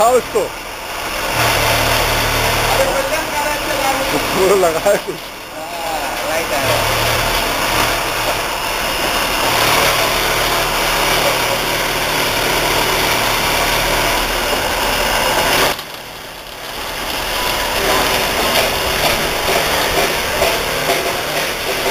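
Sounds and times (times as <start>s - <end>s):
angle grinders cutting steel: 0.0s - 21.9s.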